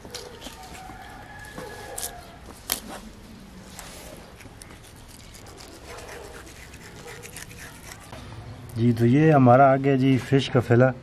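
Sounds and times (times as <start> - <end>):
knife scraping fish bones: 0.0 - 2.9, 4.3 - 8.1.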